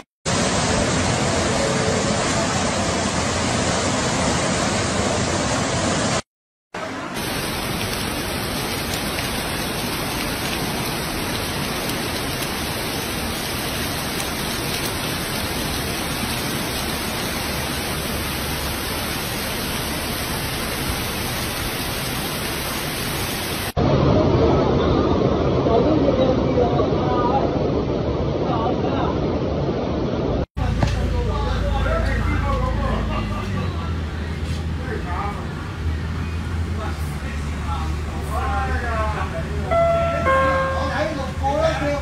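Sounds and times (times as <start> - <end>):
heavy rain on flooded street: 0.3 - 6.2, 6.8 - 26.6, 30.6 - 42.0
floodwater pouring: 7.2 - 23.8.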